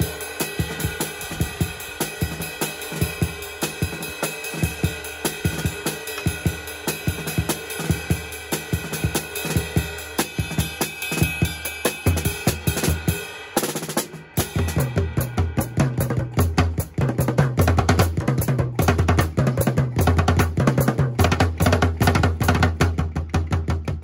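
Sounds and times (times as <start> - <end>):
acoustic drum kit groove: 0.0 - 24.0
backing track with bass line: 0.0 - 24.0.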